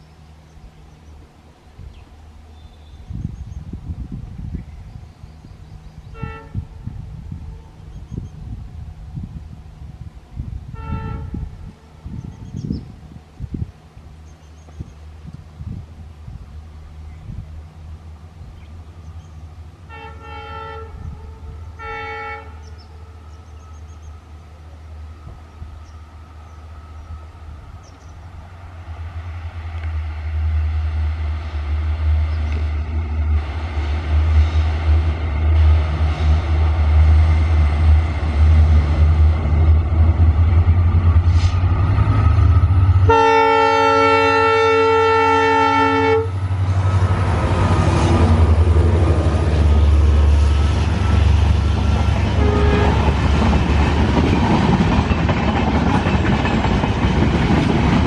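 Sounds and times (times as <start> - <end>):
diesel locomotive engine rumbling: 0.0 - 58.0
locomotive horn chord: 6.1 - 6.9, 10.7 - 12.2, 19.9 - 23.4, 42.9 - 46.5, 52.3 - 53.3
coaches rolling with wheel clatter: 53.0 - 58.0.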